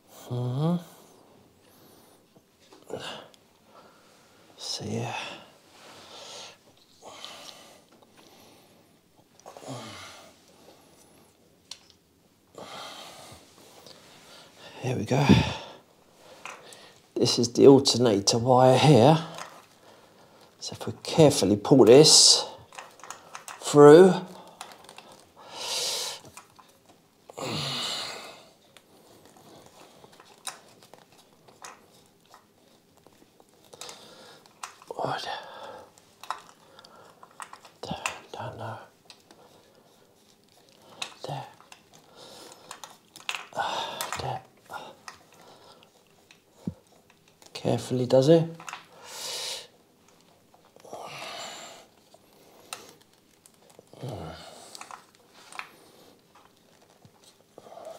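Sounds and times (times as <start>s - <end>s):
person sighing or grunting: 0.2s - 1.0s, 9.5s - 10.3s, 15.1s - 15.8s, 27.3s - 28.5s, 50.8s - 51.8s
rustling and handling noise: 1.0s - 27.4s, 28.0s - 57.9s.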